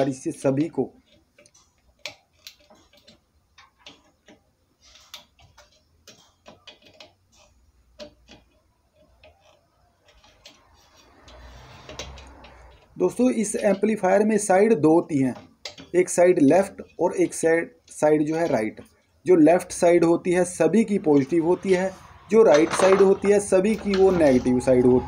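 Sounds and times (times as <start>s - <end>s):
pliers clicking on metal: 1.4s - 4.4s.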